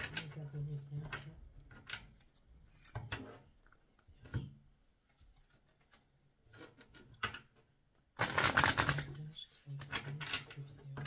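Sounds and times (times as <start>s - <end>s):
cards tapping and rustling: 8.2s - 9.2s.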